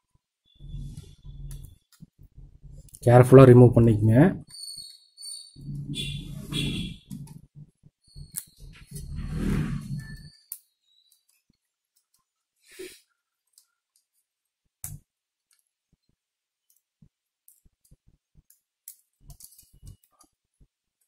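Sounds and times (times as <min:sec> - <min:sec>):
plastic laptop parts clicking: 0:16.6 - 0:20.3.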